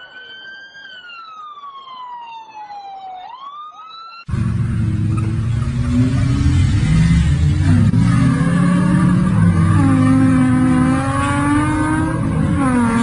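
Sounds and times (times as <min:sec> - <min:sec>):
emergency siren wailing: 0:00.0 - 0:13.0
rough car engine running hard: 0:04.3 - 0:13.0.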